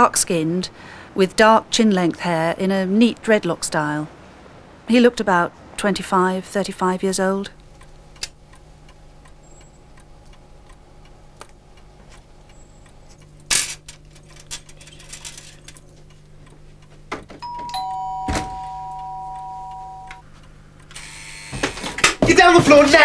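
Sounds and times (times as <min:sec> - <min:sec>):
low steady hum: 0:00.0 - 0:23.0
two-tone door bell: 0:17.4 - 0:20.2.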